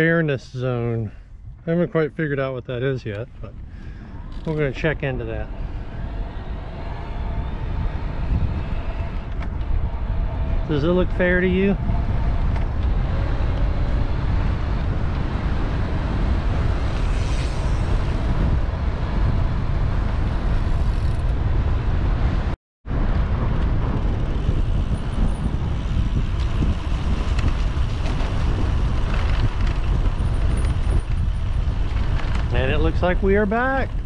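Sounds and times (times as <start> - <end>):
road and traffic noise: 0.0 - 34.0
wind rumbling on microphone: 0.0 - 34.0.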